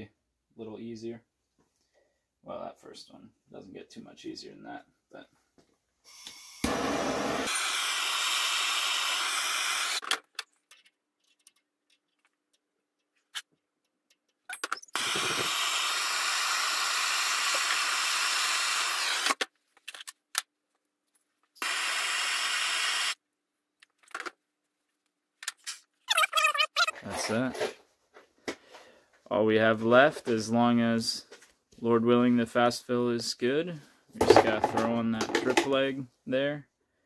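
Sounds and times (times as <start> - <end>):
gas torch hissing: 6.6 - 7.5.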